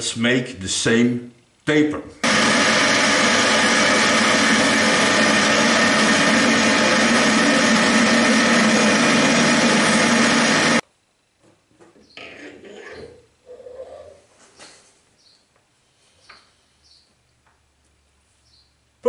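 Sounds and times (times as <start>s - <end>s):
metal lathe machining: 2.2s - 10.8s.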